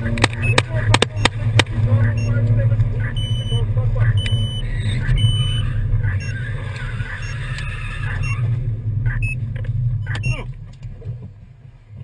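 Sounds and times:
car road and engine rumble: 0.0s - 12.0s
short electronic beeps: 0.3s - 1.4s, 2.1s - 6.4s, 7.2s - 7.4s, 8.1s - 8.4s, 9.1s - 9.4s, 10.0s - 10.4s.

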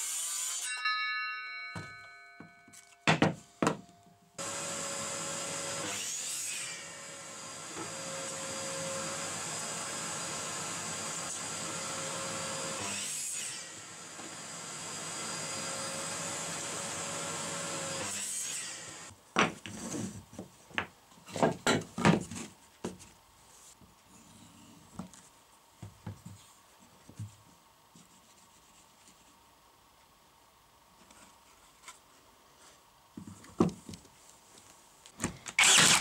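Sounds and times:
wooden blocks knocking on workbench: 3.1s - 3.8s, 19.4s - 19.8s
mitre saw cutting wood: 4.4s - 19.1s, 35.6s - 36.0s.

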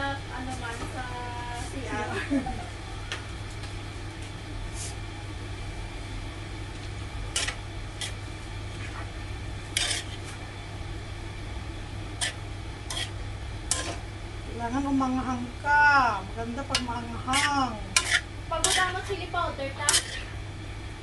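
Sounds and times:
spoon scraping a metal wok: 7.3s - 8.2s, 9.7s - 10.3s, 12.2s - 14.0s, 16.7s - 19.1s, 19.8s - 20.4s.

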